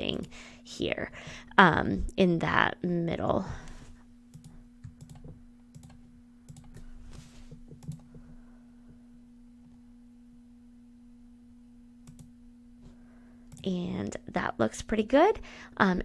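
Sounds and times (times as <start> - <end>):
low hum: 2.8 - 14.4
computer mouse clicking: 4.3 - 6.9, 7.5 - 8.2, 12.0 - 12.3.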